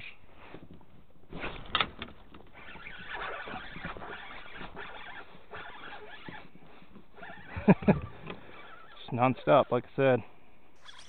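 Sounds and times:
fishing reel cranking: 0:07.2 - 0:09.6, 0:10.8 - 0:11.0.

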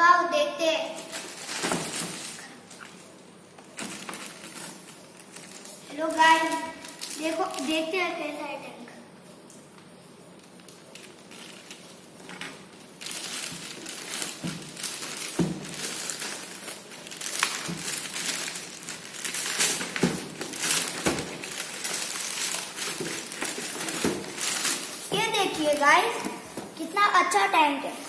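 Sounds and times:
plastic bag crinkling and tearing: 0:00.9 - 0:03.1, 0:03.7 - 0:07.9, 0:10.4 - 0:12.2, 0:12.9 - 0:26.4.

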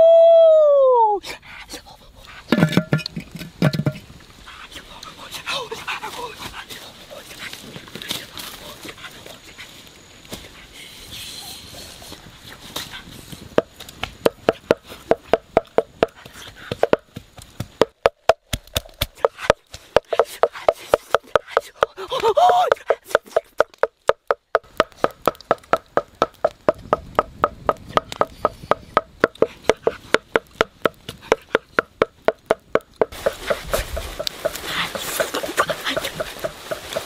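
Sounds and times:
wooden pestle pounding in mortar: 0:13.6 - 0:33.6.

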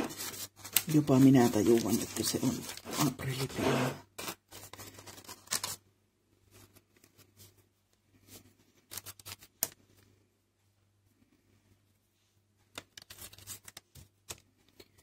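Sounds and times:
baking paper rustling and crinkling: 0:00.0 - 0:05.8, 0:12.9 - 0:14.4.

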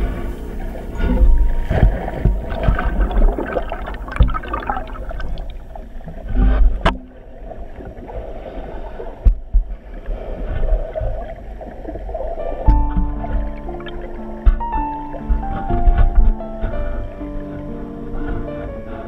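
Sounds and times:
heavy low rumble: 0:00.0 - 0:08.0
water rushing and bubbling underwater: 0:00.0 - 0:19.0.

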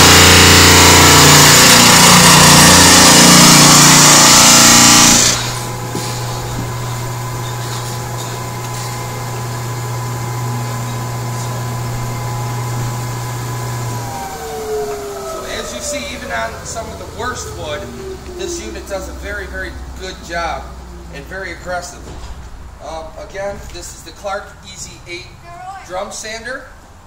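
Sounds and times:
drum sander sanding plywood: 0:00.0 - 0:19.0
motor humming with thin whine: 0:00.0 - 0:21.3.

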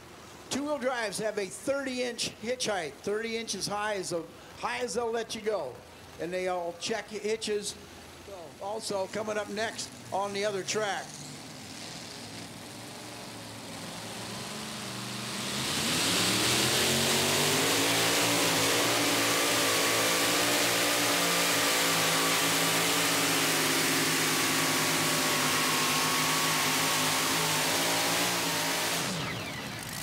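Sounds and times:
supercharged engine at full throttle: 0:11.1 - 0:30.0.

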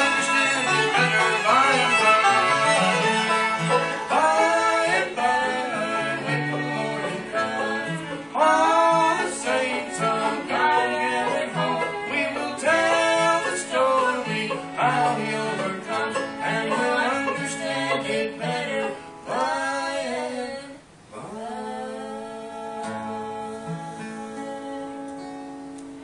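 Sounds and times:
string band playing gospel tune: 0:00.0 - 0:20.3.

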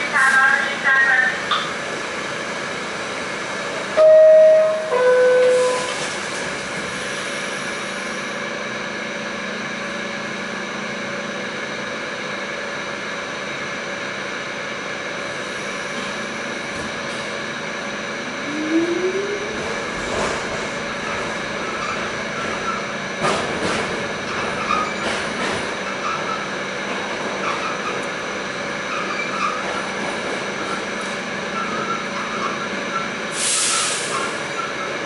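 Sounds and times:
train car humming: 0:00.0 - 0:35.0
train rising whine: 0:00.0 - 0:35.0
two-tone door chime: 0:04.0 - 0:05.9.

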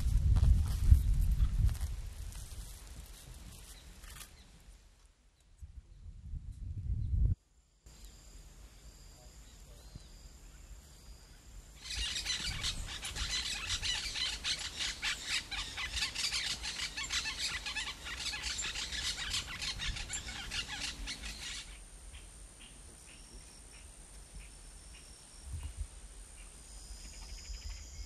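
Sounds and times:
faint steady high tones: 0:07.9 - 0:11.8
birds chattering: 0:11.8 - 0:25.1.

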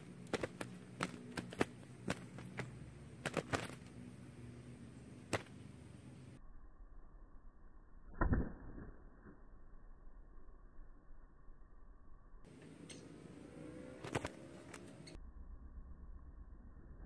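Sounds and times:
doves wing claps: 0:00.0 - 0:04.0, 0:14.0 - 0:15.2.

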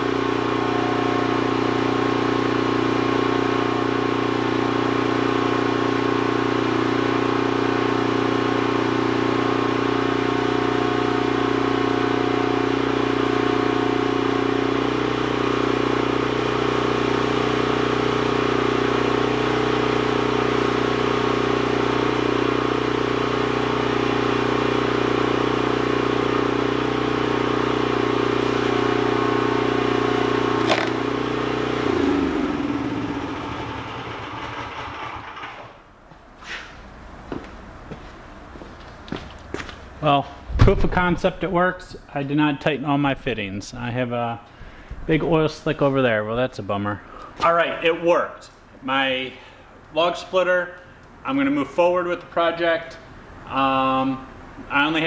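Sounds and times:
engine running steadily: 0:00.0 - 0:35.7, 0:43.1 - 0:46.0
hydraulic log splitter ram: 0:00.0 - 0:35.8.

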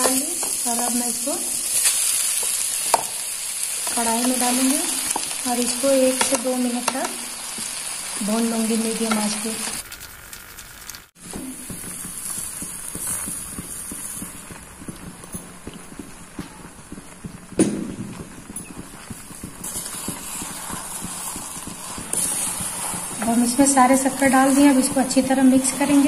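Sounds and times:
wooden spatula knocking and scraping: 0:11.2 - 0:26.0.

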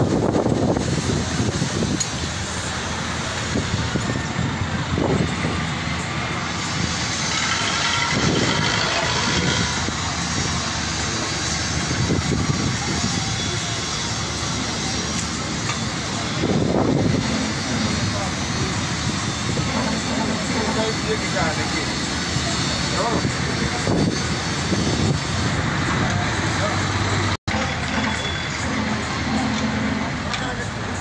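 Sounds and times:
road traffic noise: 0:00.0 - 0:31.0
motorcycle engine: 0:07.2 - 0:10.1, 0:26.1 - 0:30.7.

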